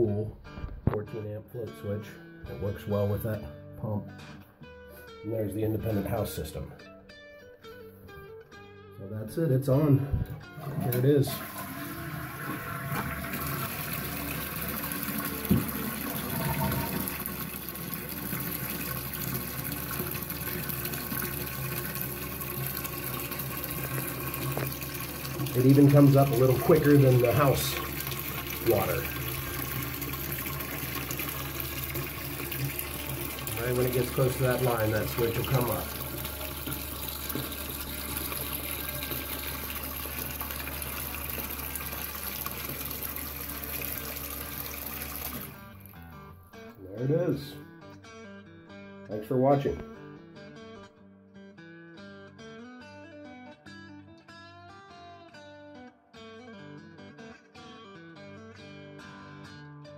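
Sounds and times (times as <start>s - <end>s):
water running into toilet tank: 10.4s - 46.0s
pipe knock: 15.4s - 17.1s.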